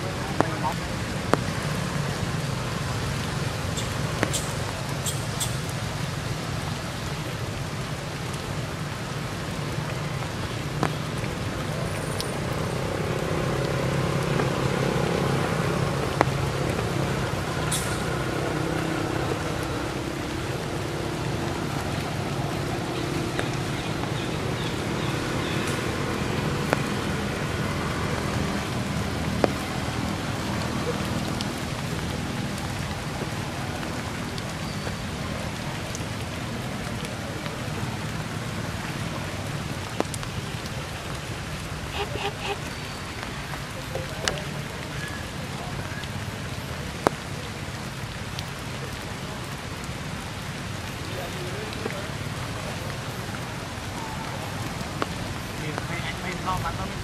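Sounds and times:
rain falling through forest: 0:00.0 - 0:57.0
sharp ticks of drips: 0:00.1 - 0:57.0.

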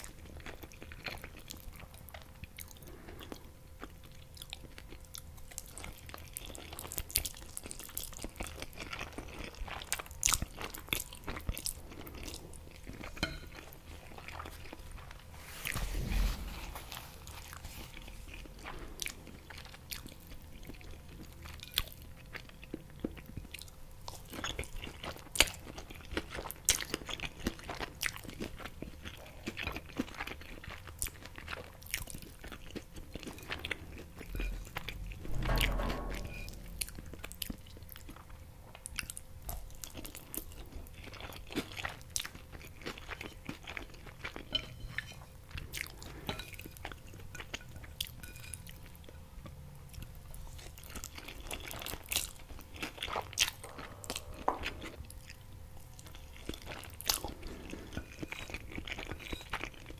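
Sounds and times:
chewing with wet mouth clicks: 0:00.0 - 0:14.8
low thump: 0:15.7 - 0:17.0, 0:34.5 - 0:37.6.

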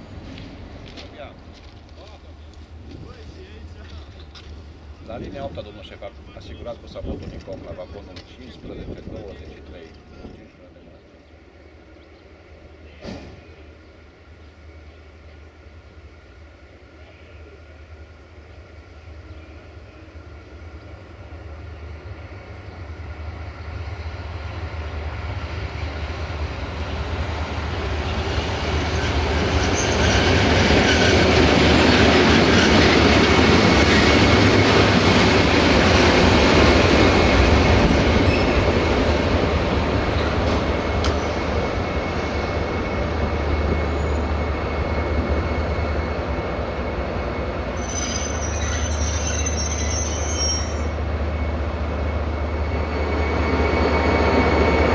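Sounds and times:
diesel locomotive engine under load: 0:00.0 - 0:54.9
train wheel squeal: 0:27.9 - 0:39.1, 0:40.1 - 0:54.9.

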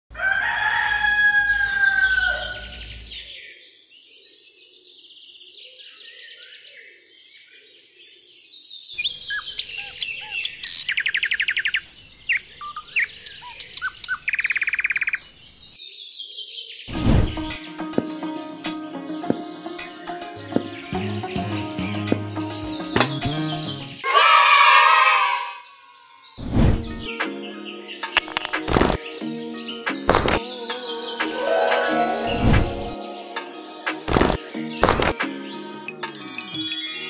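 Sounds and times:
high bird chirps: 0:29.8 - 0:35.6.

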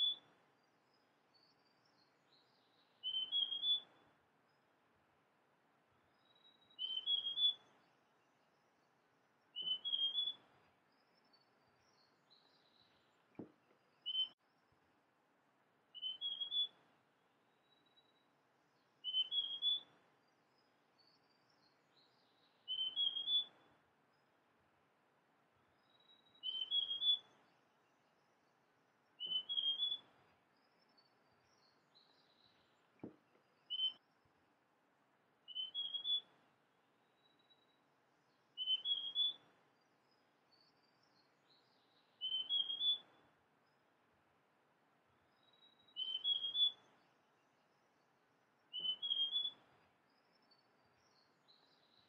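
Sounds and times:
faint bird chirps: 0:00.0 - 0:52.0
bird singing rising notes: 0:22.2 - 0:23.6, 0:29.2 - 0:30.1, 0:33.6 - 0:34.2, 0:35.5 - 0:36.3, 0:38.6 - 0:39.4, 0:41.0 - 0:43.1, 0:45.3 - 0:47.1, 0:48.6 - 0:49.6.

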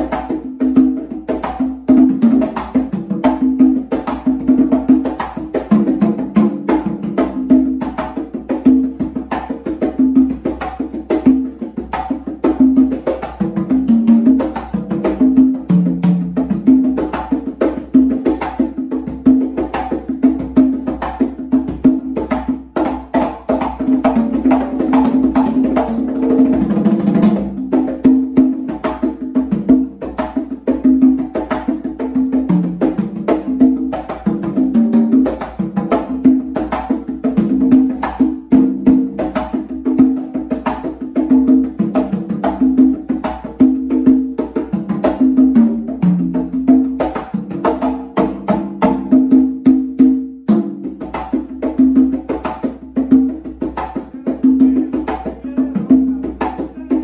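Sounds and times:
congas played by hand: 0:00.0 - 0:57.0
salsa music recording: 0:50.5 - 0:57.0.

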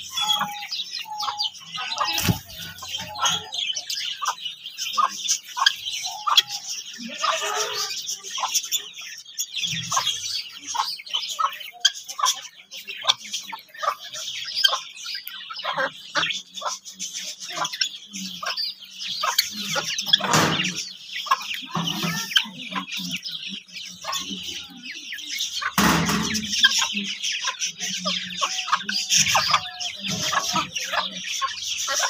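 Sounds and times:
beaks tapping on ground: 0:00.0 - 0:32.0
hens clucking: 0:00.0 - 0:32.0
hens scuffling: 0:01.5 - 0:03.5, 0:19.2 - 0:23.3.

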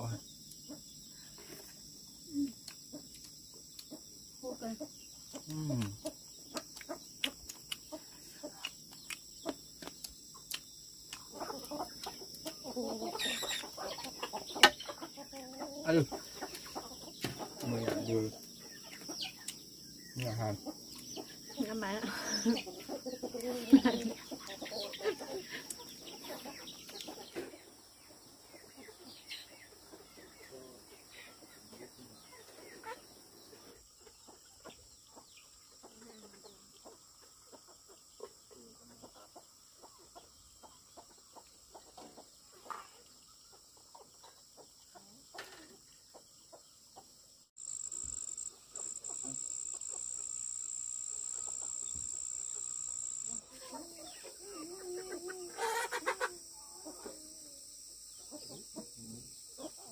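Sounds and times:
high-pitched insect drone: 0:00.0 - 0:27.4, 0:47.5 - 0:59.9
chickens clucking: 0:00.0 - 0:47.4, 0:51.2 - 0:59.9.

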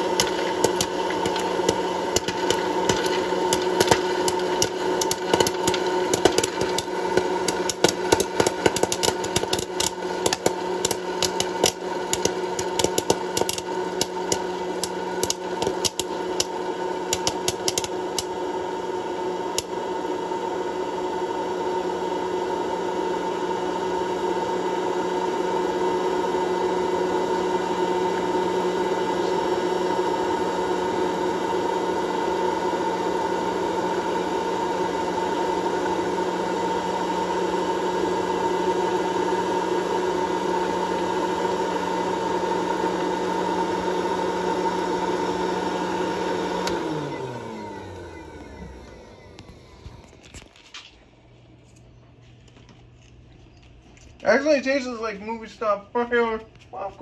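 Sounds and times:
popcorn kernels popping: 0:00.0 - 0:19.9
popcorn popper blower whirring: 0:00.0 - 0:57.0.

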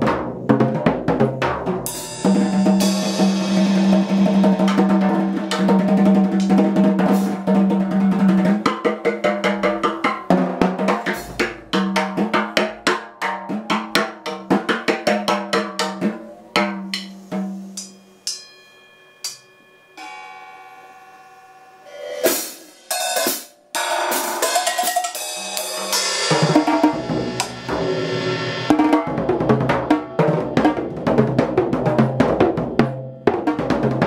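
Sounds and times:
drum kit playing: 0:00.0 - 0:18.6, 0:21.9 - 0:34.0
ringing cymbal note: 0:01.9 - 0:07.5, 0:16.4 - 0:31.1.

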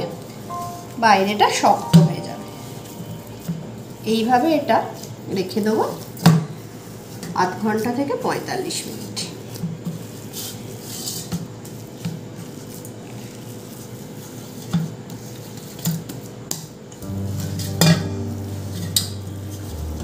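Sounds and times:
background music: 0:00.0 - 0:04.8, 0:17.0 - 0:20.0
hands kneading dough: 0:04.0 - 0:16.7.

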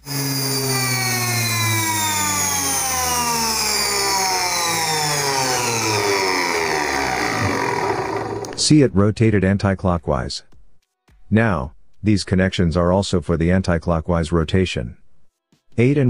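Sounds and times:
washing machine motor whine: 0:00.0 - 0:08.6.

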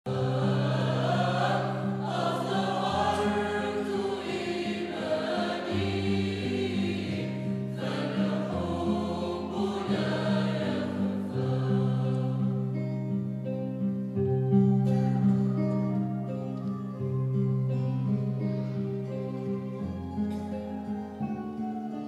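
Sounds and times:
mixed choir singing a hymn: 0:00.1 - 0:13.3.

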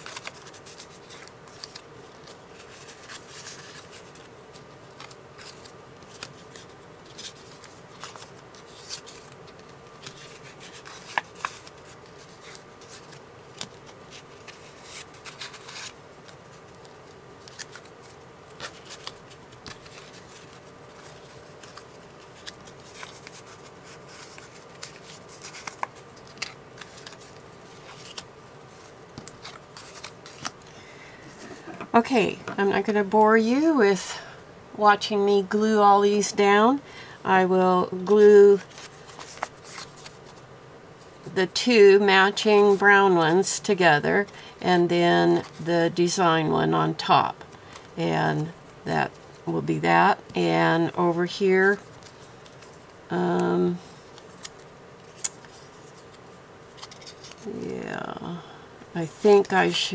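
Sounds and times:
paper rustling and sliding: 0:00.0 - 0:31.7, 0:38.6 - 0:40.4
faint steady hum: 0:00.0 - 0:59.9.

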